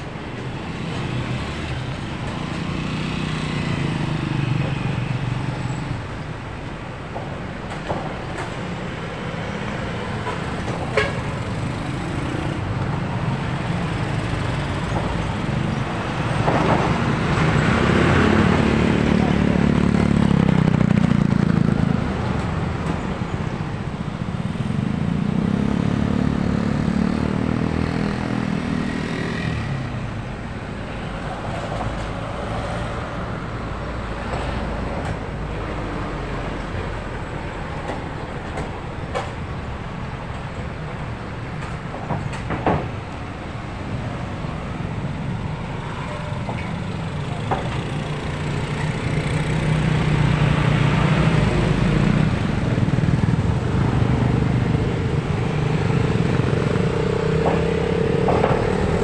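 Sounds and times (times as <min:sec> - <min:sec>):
highway traffic passing: 0:00.0 - 0:59.0
loud vehicles passing: 0:00.0 - 0:59.0.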